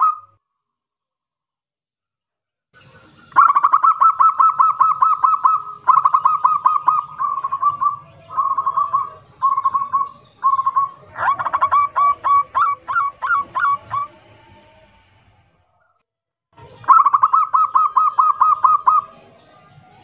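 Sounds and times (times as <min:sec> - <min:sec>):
dove cooing song: 0:03.3 - 0:14.4, 0:16.7 - 0:19.5.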